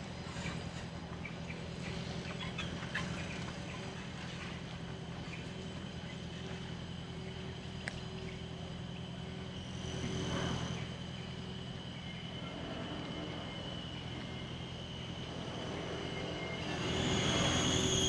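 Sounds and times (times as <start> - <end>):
low outdoor hum: 0.0 - 18.0
faint high steady tone: 5.4 - 18.0.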